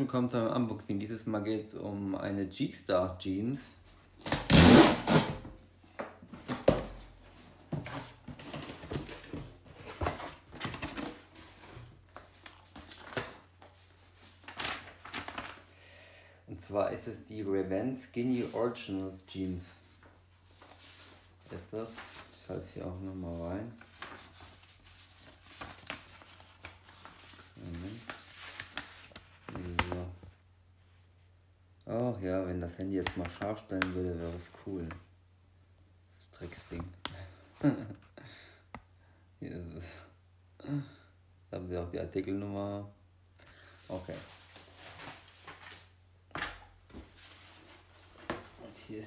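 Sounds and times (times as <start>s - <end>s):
paper rustling: 6.3s - 15.7s, 19.8s - 30.4s, 43.6s - 49.0s.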